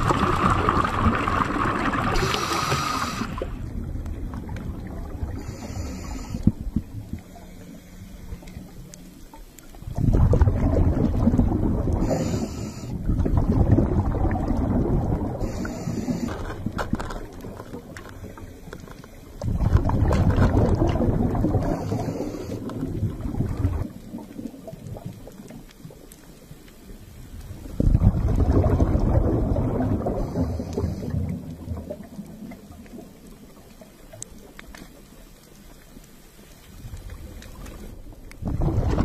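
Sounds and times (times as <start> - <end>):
underwater hiss: 0.0 - 3.7, 5.2 - 8.8, 11.7 - 13.2, 14.6 - 16.7, 20.7 - 23.8, 29.4 - 32.0
scuba exhaust bubbling: 0.0 - 34.5, 36.7 - 39.0.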